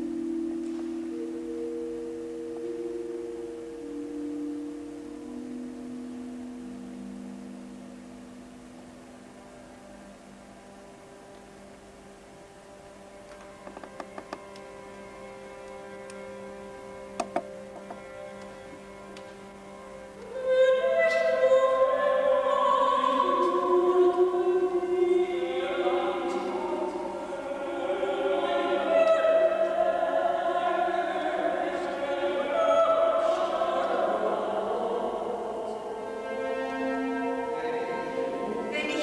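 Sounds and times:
faint sustained tone: 0:00.0 - 0:39.0
two women singing held notes: 0:20.5 - 0:36.6.

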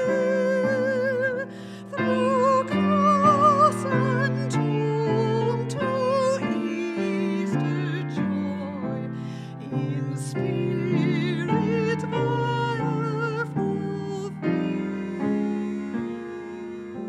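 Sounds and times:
soprano singing: 0:00.0 - 0:17.0
singer breath: 0:01.5 - 0:02.0, 0:09.1 - 0:09.6.

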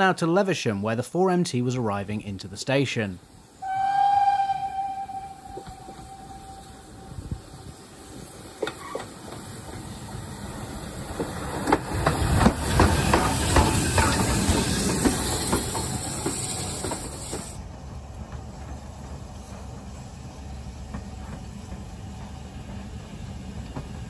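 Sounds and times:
steam hissing: 0:03.2 - 0:17.8
locomotive motion clanking: 0:03.6 - 0:24.0
wheels clicking over rail joints: 0:07.5 - 0:24.0.

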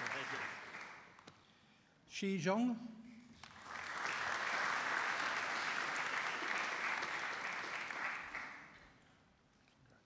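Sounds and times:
audience applauding: 0:00.0 - 0:01.2, 0:03.4 - 0:08.8.

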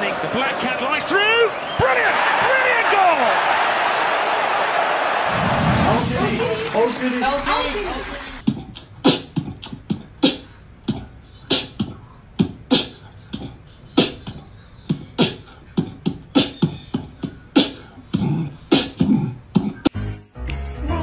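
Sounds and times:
beatbox-style percussion beat: 0:08.4 - 0:20.0.

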